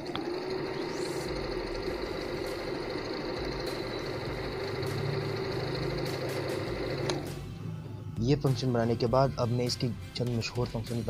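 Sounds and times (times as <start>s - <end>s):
faint high whine: 0.0s - 7.3s
sewing machine running: 0.0s - 7.4s.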